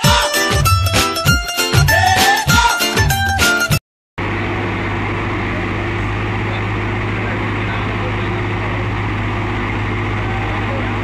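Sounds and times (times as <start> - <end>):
tractor diesel engines running: 4.2 - 11.0.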